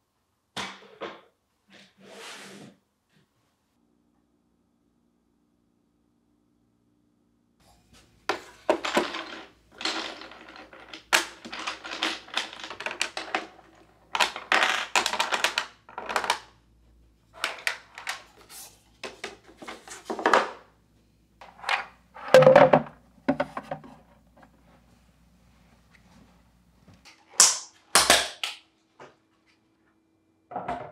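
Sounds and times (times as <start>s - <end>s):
objects clicking and clattering: 8.2s - 16.6s, 17.4s - 20.6s.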